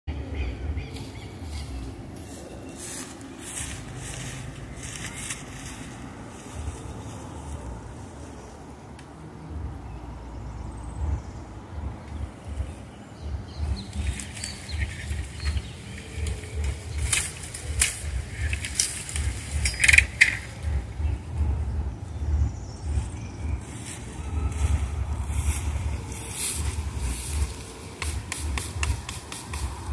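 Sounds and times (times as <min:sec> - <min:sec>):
wind buffeting microphone: 0:00.1 - 0:29.9
leaves rustling: 0:00.8 - 0:09.4, 0:12.1 - 0:29.9
bamboo cane cracking: 0:13.9 - 0:20.8, 0:24.6 - 0:29.9.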